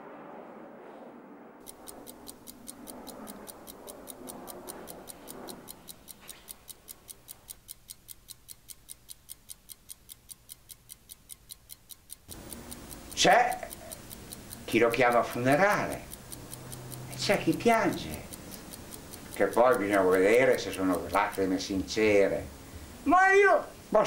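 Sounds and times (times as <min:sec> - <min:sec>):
soft background noise: 0:00.8 - 0:24.0
clock ticking fast: 0:01.6 - 0:24.0.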